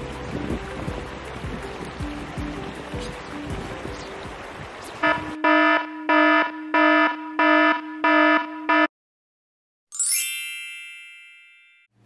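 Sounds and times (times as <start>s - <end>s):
pulsing buzzing alarm tone: 5.0s - 8.9s
bright ding: 10.0s - 11.9s.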